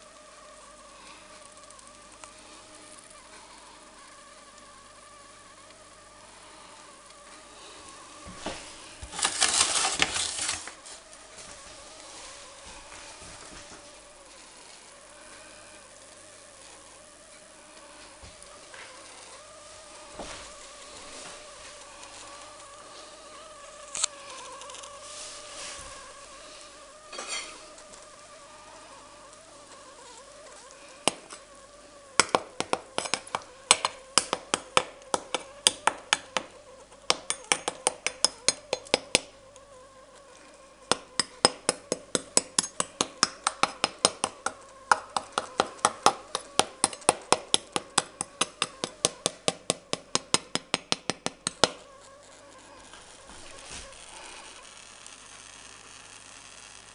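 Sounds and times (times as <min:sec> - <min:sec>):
faint steady hum: 0:00.0 - 0:56.9
knife crunching through crackling: 0:09.1 - 0:10.8.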